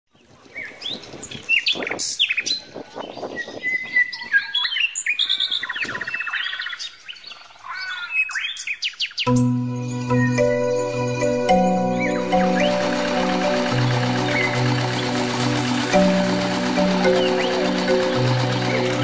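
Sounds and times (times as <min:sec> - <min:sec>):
small birds chirping: 0:00.1 - 0:09.4
bird trill: 0:03.4 - 0:19.0.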